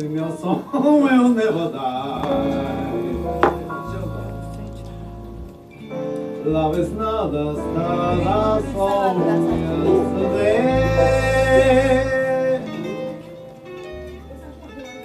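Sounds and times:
electric guitar: 2.1s - 15.0s
upright double bass: 2.2s - 5.6s, 6.4s - 14.7s
person singing: 6.4s - 13.4s.

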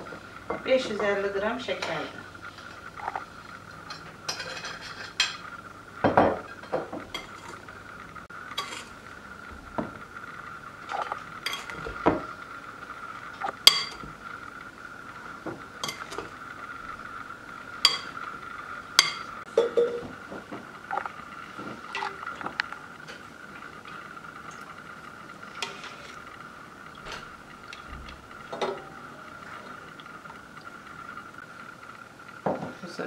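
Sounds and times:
utensils clinking against dish: 3.8s - 5.5s, 8.6s - 8.9s, 13.6s - 14.0s, 15.8s - 16.3s, 17.9s - 18.2s, 19.0s - 20.0s.

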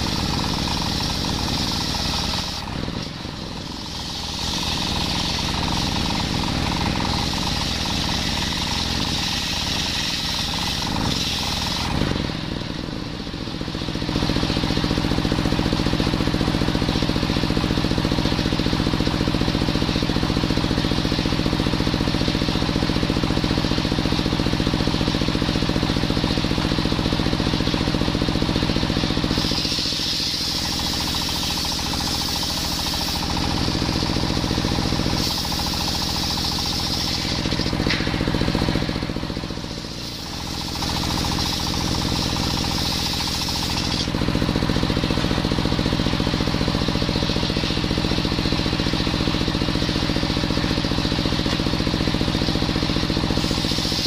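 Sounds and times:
table saw blade whining through wood: 0.0s - 12.3s, 28.6s - 50.7s, 53.1s - 54.0s
stationary engine running: 0.0s - 54.0s.

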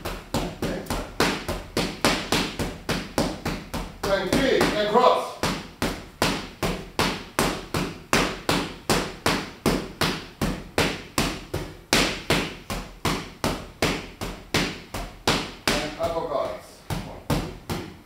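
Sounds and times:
boxing gloves smacking mitts: 0.0s - 18.0s.

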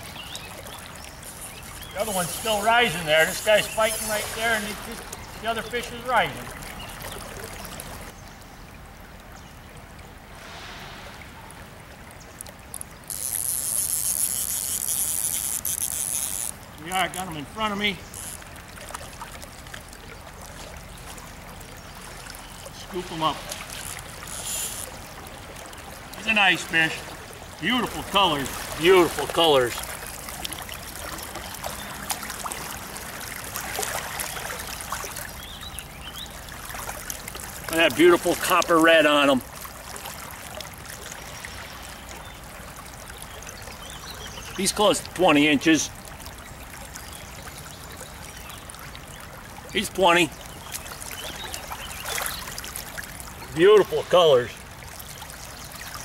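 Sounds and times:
fish splashing: 0.0s - 8.2s, 10.1s - 45.2s, 50.3s - 56.0s
river water: 0.0s - 56.0s.

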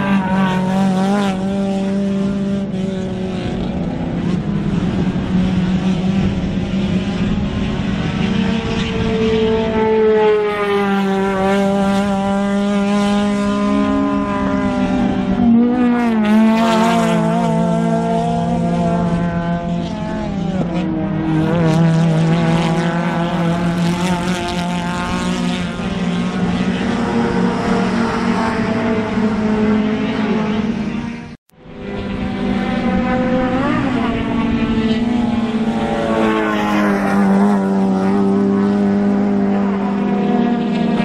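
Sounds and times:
race car engines revving: 0.0s - 41.0s.

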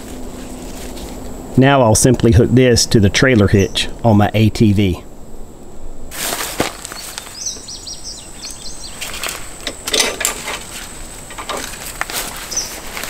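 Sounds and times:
rope rustling: 0.0s - 1.4s, 6.1s - 7.7s, 8.9s - 9.6s, 10.2s - 13.0s
bird chirping: 3.3s - 4.1s, 6.9s - 9.2s, 12.5s - 12.8s.

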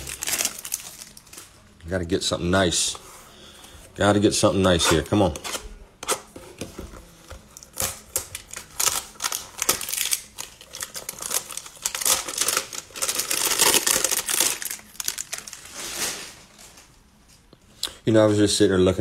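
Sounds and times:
cardboard packaging crinkling: 0.0s - 1.6s, 7.3s - 16.9s.

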